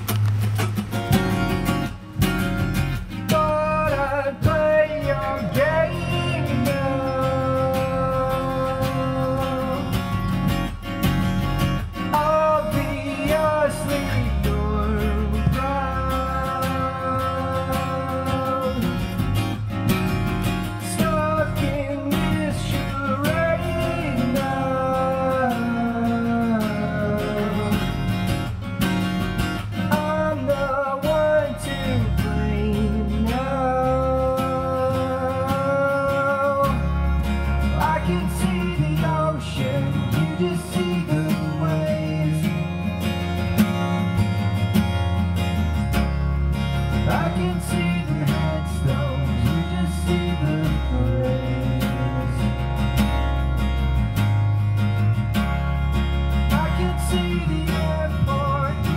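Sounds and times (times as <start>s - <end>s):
electric bass: 0.0s - 58.9s
strummed acoustic guitar: 0.0s - 58.9s
man singing: 3.0s - 10.6s, 11.9s - 19.7s, 20.7s - 28.6s, 29.6s - 43.2s, 46.9s - 53.0s, 56.4s - 58.9s.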